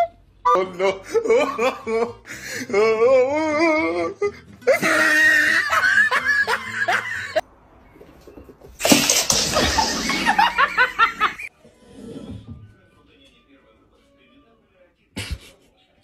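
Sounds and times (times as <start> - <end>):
person laughing: 4.7 - 7.4, 9.2 - 11.5.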